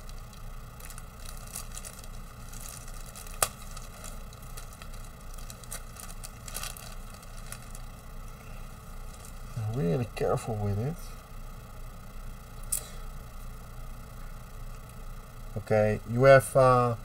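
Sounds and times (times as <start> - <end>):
plastic bag crinkling: 0.0 - 8.0, 9.0 - 9.8.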